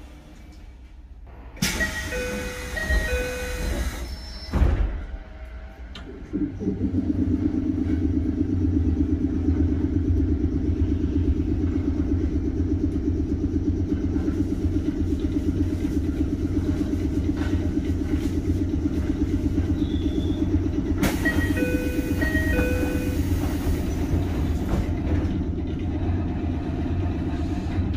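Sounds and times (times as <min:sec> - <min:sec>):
train machinery throbbing hum: 0:00.0 - 0:27.9.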